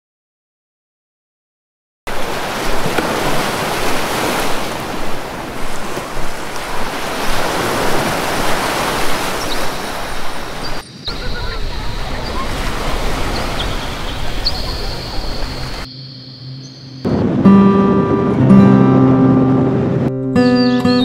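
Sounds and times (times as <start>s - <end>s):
surf washing onto beach: 2.1s - 15.9s.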